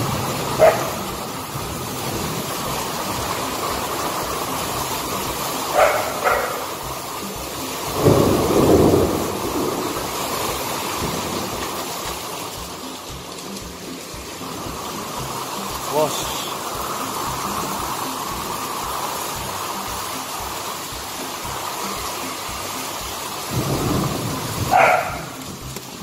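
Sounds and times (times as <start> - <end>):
thunder rumble: 0.0 - 15.4, 23.4 - 26.0
heavy rain pouring: 0.0 - 26.0.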